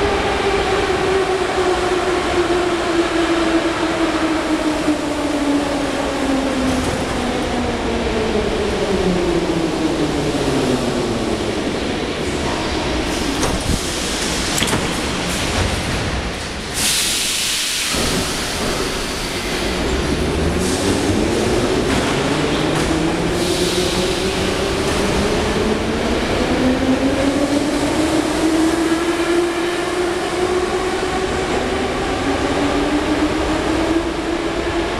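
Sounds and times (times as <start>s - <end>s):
train running rumble: 10.8s - 34.6s
air hissing: 16.7s - 19.4s.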